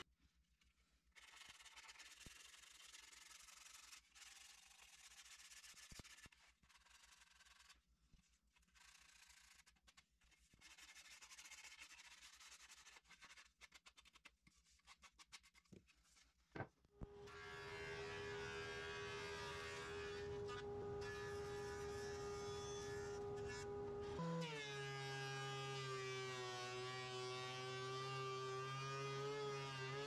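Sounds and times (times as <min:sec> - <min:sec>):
sandpaper rubbing on wood: 0:10.6 - 0:14.2.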